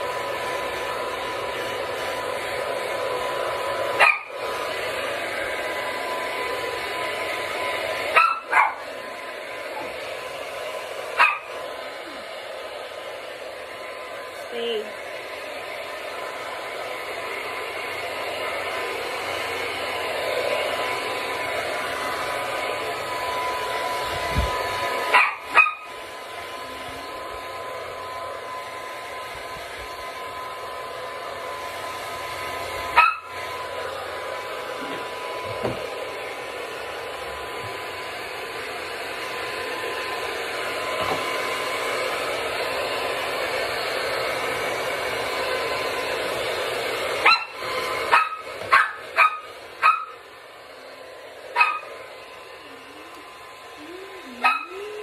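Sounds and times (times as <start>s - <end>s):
hair dryer blowing: 0.0s - 55.0s
small dog yapping: 4.0s - 4.4s, 8.1s - 8.9s, 11.2s - 11.6s, 25.1s - 26.0s, 32.9s - 33.4s, 47.2s - 50.2s, 51.5s - 52.0s, 54.2s - 55.0s.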